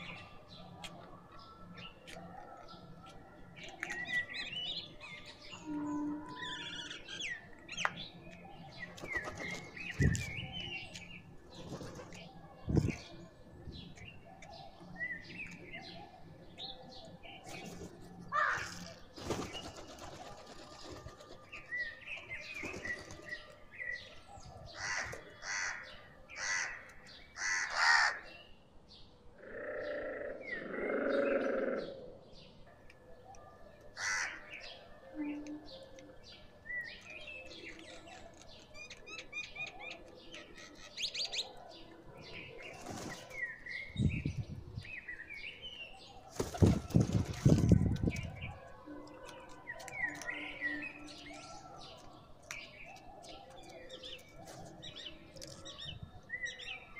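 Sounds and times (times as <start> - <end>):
birds pecking on concrete: 7.8 - 13.1, 16.5 - 23.6, 35.8 - 41.4, 42.0 - 43.5, 46.3 - 56.5
wings flapping: 46.3 - 48.0.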